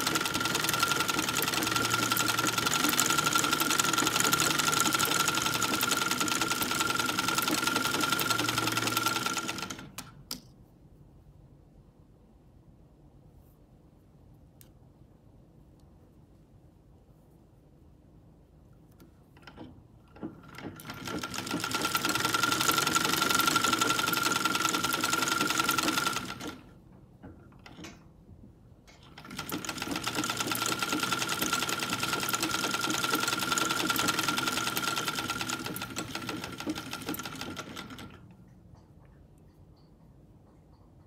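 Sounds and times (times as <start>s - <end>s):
sewing machine running: 0.0s - 10.2s, 19.4s - 26.7s, 29.0s - 38.3s.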